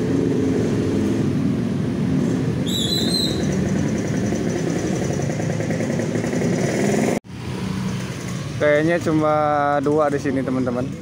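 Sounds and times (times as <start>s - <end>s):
motor vehicle engine running: 3.2s - 8.6s.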